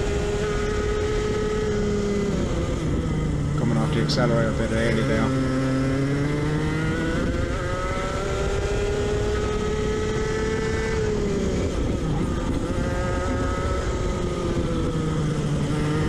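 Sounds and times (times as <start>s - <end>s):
go-kart engine at full throttle: 0.0s - 16.0s
road rumble: 0.0s - 16.0s
wind: 0.0s - 16.0s.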